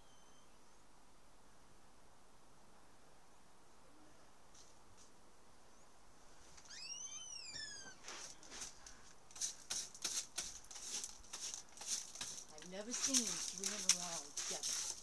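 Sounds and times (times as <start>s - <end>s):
eagle calling: 6.7s - 8.0s.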